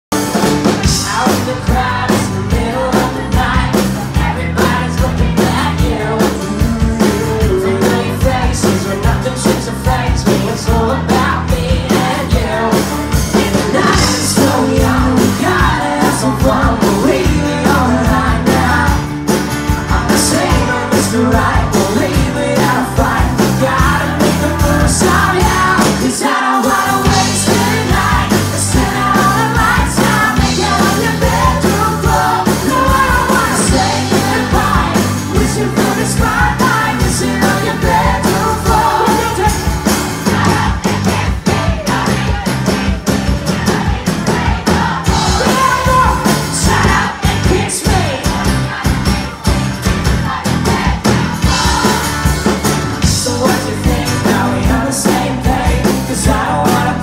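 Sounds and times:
strummed acoustic guitars: 0.1s - 57.0s
man singing: 0.8s - 19.2s, 19.8s - 39.8s, 45.1s - 48.3s, 53.0s - 57.0s.

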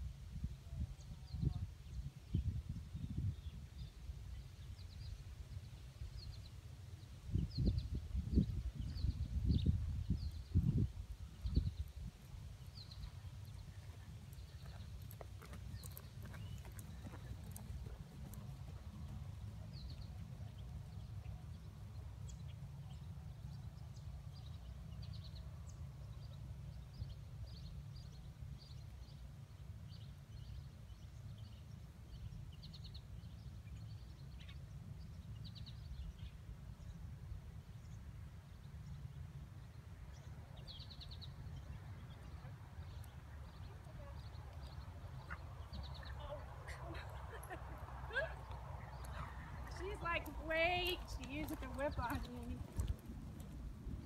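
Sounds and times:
wind rumble on microphone: 0.0s - 21.1s, 46.9s - 54.0s
birds chirping: 7.4s - 54.0s
hoofbeats on sand: 12.9s - 21.1s, 49.0s - 54.0s.

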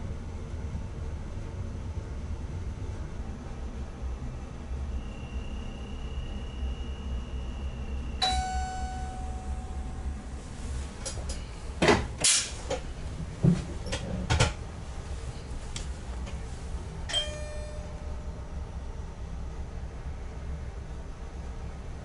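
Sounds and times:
chime dings: 8.2s - 10.3s, 17.1s - 18.2s
steady high beep: 8.2s - 10.4s.

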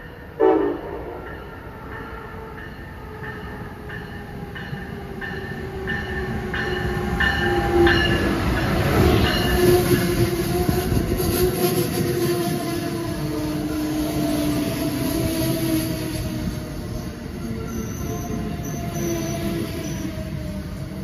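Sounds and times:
electric train rumble and hum: 0.0s - 21.0s.

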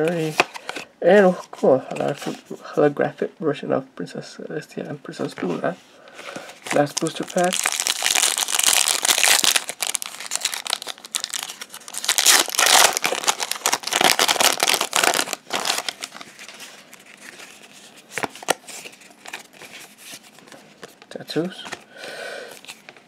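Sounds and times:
cards rustling: 0.0s - 2.5s, 5.2s - 21.9s
plastic wrapper tearing and crinkling: 6.6s - 19.9s.

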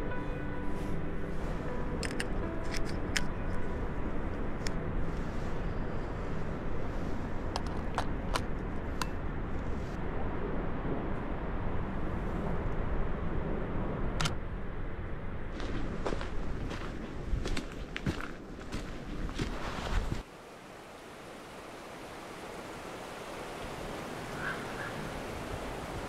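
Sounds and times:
waterfall roaring: 20.3s - 26.0s.

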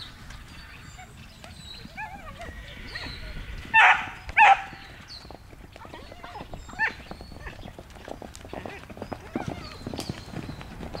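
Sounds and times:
horse hooves on sand: 0.0s - 11.0s
dog barking: 3.8s - 4.7s
dog yelping: 3.8s - 4.7s.

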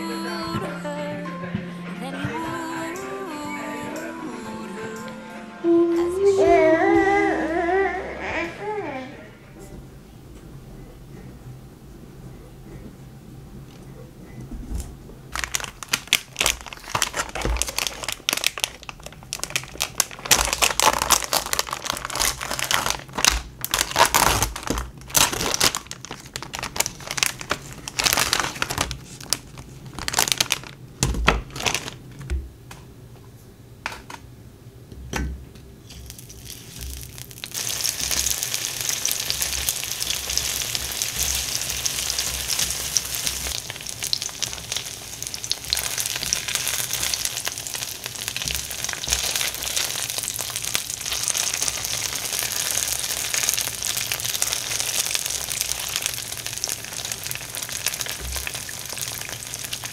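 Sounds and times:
plastic packaging crinkling: 15.3s - 32.3s, 35.9s - 59.9s
dumplings sizzling in oil: 35.9s - 59.9s.

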